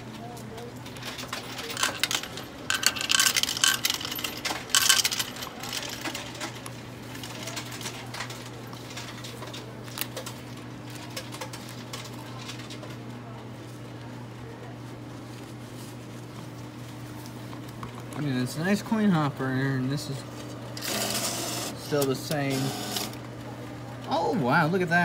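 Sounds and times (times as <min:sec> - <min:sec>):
coins clinking and rattling: 0:00.9 - 0:06.6.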